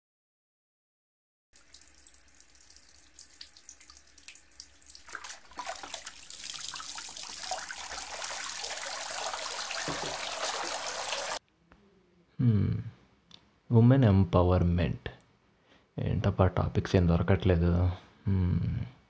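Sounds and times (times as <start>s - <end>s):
tap running into steel sink: 9.8s - 10.6s.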